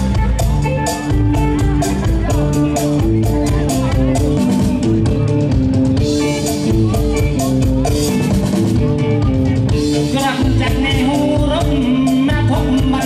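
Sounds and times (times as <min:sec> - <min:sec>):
amplified music with drum beat: 0:00.0 - 0:13.0
man singing into microphone: 0:10.0 - 0:13.0.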